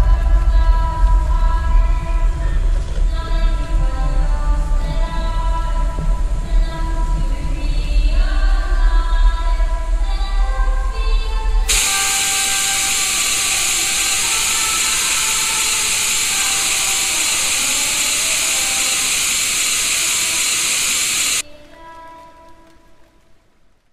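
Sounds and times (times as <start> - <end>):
television static hiss: 11.6 - 23.9.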